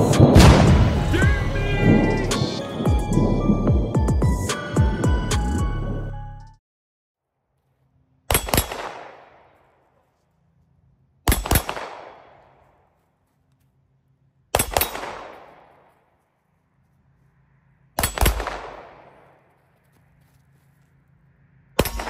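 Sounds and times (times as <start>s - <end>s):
pistol shots echoing: 0.0s - 2.8s, 8.3s - 10.0s, 11.2s - 12.8s, 14.5s - 16.0s, 18.0s - 19.5s.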